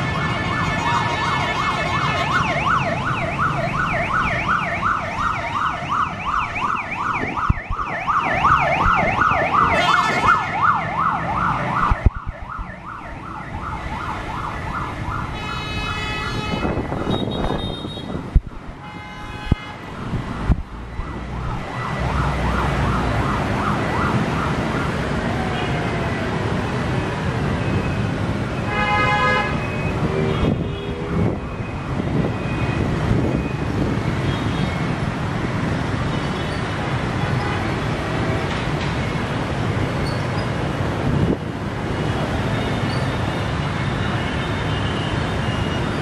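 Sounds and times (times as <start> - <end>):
sirens yelping: 0.0 - 17.6, 20.1 - 28.6
city traffic: 0.0 - 46.0
short pitched siren blasts: 0.8 - 17.5
motorbike engines: 20.1 - 46.0.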